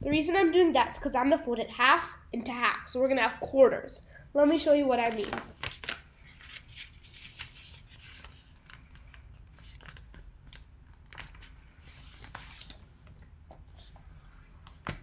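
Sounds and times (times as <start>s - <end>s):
paper folding and crinkling: 5.0s - 15.0s.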